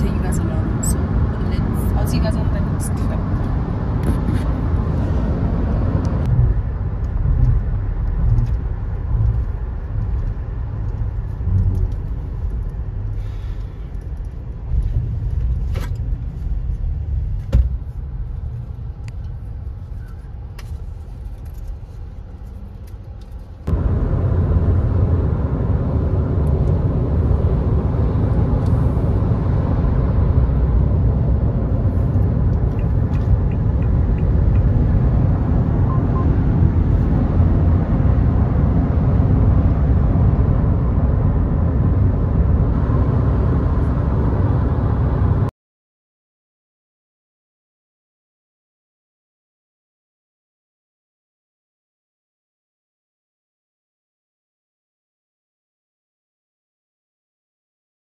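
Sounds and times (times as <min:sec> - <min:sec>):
car cabin road rumble: 0:00.0 - 0:45.5.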